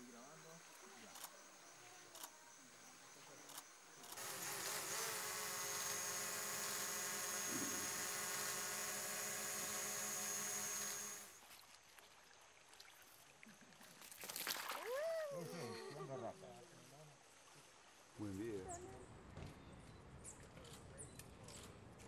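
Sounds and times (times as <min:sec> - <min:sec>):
insect buzzing: 0:00.0 - 0:11.4.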